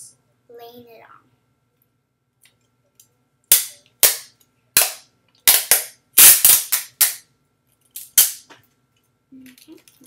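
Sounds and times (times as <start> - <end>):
tape ripping off dispenser: 5.5 - 7.1.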